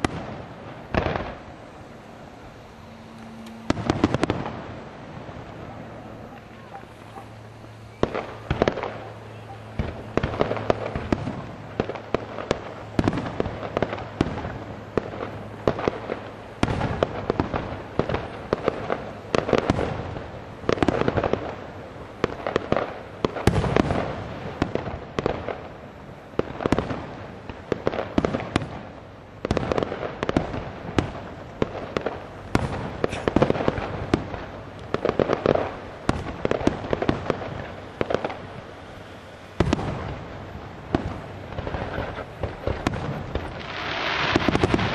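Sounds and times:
fireworks crackling: 0.0s - 44.9s
firework shell bursts: 32.2s - 40.1s.

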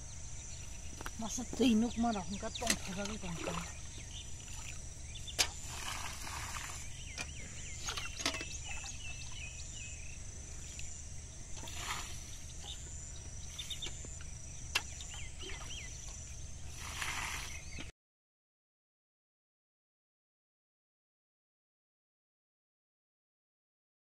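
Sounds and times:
high insect drone: 0.0s - 17.9s
small birds chirping: 0.0s - 17.9s.

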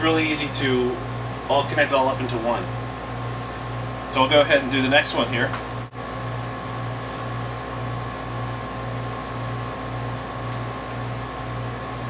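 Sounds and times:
mechanical hum with low throb: 0.0s - 12.0s.

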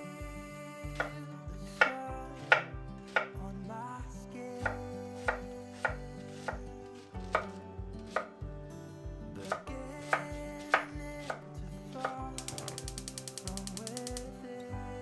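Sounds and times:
knife chopping on wooden board: 7.4s - 8.3s.

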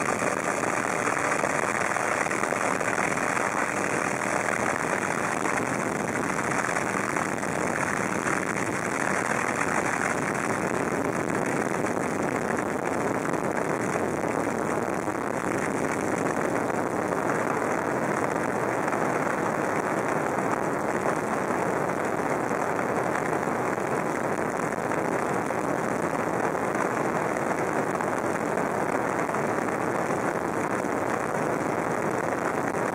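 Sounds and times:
aircraft cabin drone: 0.0s - 10.9s.

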